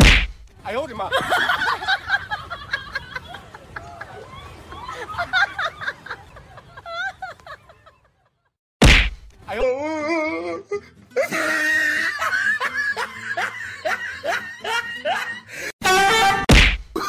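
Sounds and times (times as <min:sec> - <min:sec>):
sharp knock: 0:00.0 - 0:00.4, 0:08.8 - 0:09.3, 0:16.5 - 0:16.9
music: 0:09.3 - 0:17.0
person laughing: 0:10.5 - 0:15.6.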